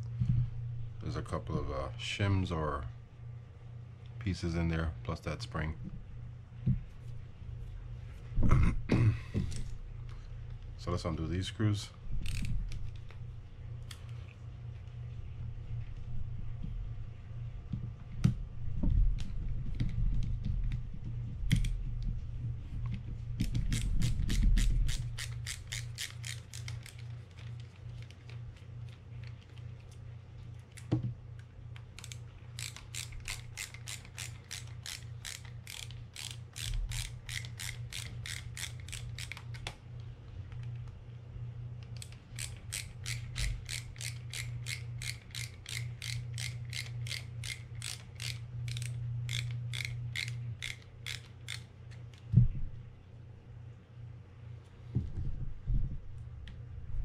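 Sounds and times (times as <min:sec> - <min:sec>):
low steady hum: 0:00.0 - 0:57.0
ratcheting screwdriver clicking: 0:12.2 - 0:12.5, 0:23.4 - 0:27.1, 0:32.0 - 0:39.6, 0:41.9 - 0:52.0.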